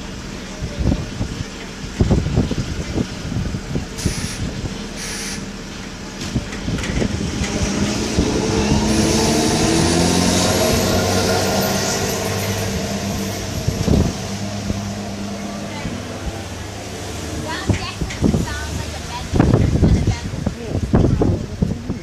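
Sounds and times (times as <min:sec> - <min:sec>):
diesel engine revving: 0:00.0 - 0:21.8
short air hisses: 0:04.0 - 0:05.4.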